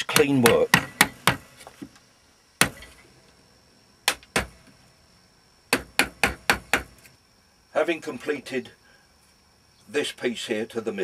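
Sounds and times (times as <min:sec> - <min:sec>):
mallet striking chisel: 0:00.1 - 0:01.4, 0:04.1 - 0:04.5, 0:05.7 - 0:06.9.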